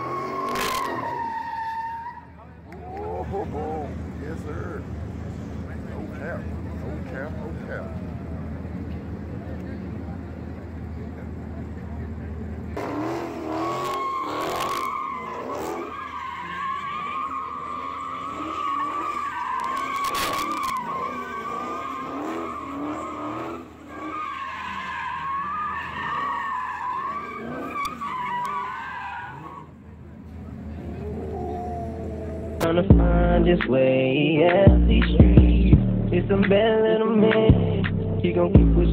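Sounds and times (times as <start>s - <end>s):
car engine revving: 0.0s - 1.5s, 2.4s - 29.7s
car tyres squealing: 0.0s - 8.2s, 12.7s - 32.7s.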